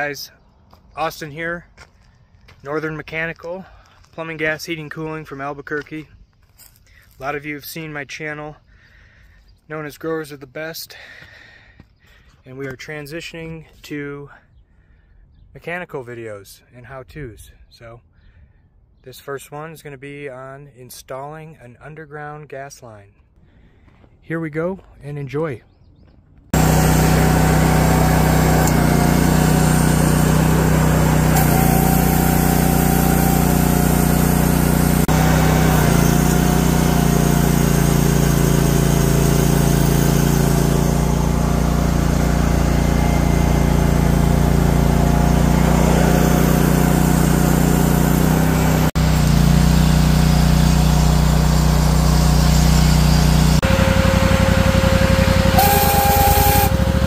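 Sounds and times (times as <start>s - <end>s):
trencher gas engine running: 26.6s - 57.0s.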